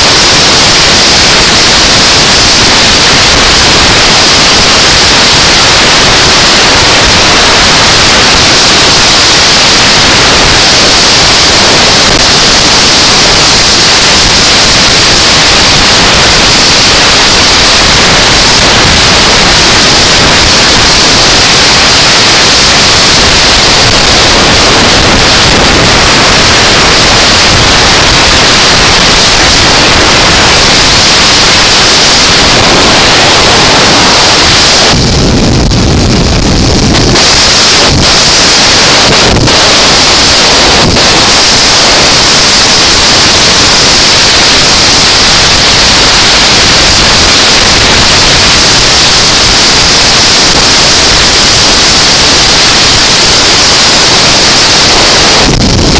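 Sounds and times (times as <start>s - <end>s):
wind noise on microphone: 0.0s - 55.9s
low rumble: 32.4s - 41.2s.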